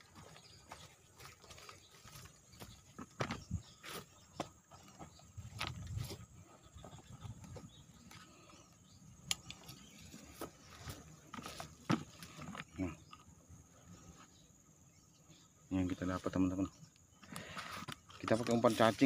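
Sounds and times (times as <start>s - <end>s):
footsteps through dry stubble: 0.0s - 8.5s, 9.6s - 12.6s, 17.6s - 19.0s.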